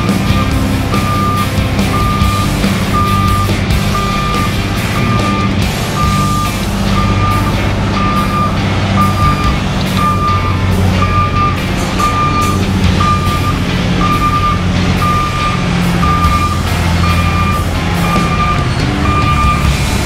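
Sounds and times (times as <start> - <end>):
diesel engine hum: 0.0 - 20.0
truck reverse alarm beeping: 0.0 - 20.0.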